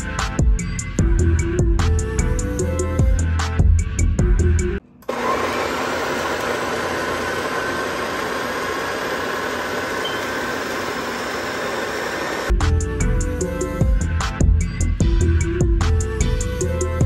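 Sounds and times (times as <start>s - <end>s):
blender motor running: 5.0s - 12.5s.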